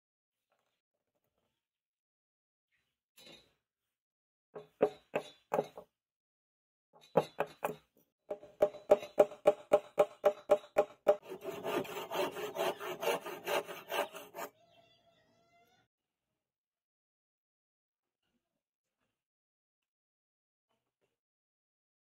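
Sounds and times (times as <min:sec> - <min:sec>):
hammer tapping wood: 0:07.2 - 0:14.5
hand tool scraping wood: 0:08.9 - 0:14.5.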